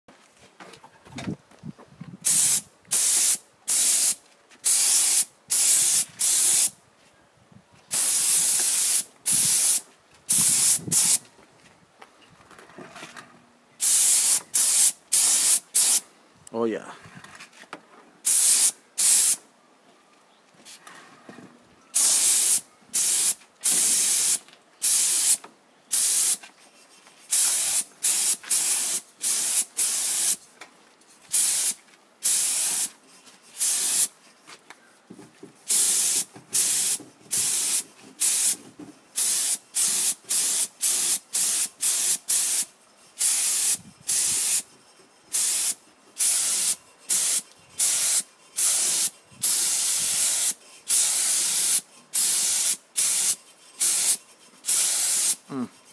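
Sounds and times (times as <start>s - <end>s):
spray gun hissing in bursts: 2.2s - 6.8s, 7.9s - 11.2s, 13.8s - 16.0s, 18.2s - 19.4s, 22.0s - 26.4s, 27.3s - 30.4s, 31.3s - 33.0s, 33.6s - 34.1s, 35.7s - 38.6s, 39.2s - 44.7s, 45.3s - 55.7s.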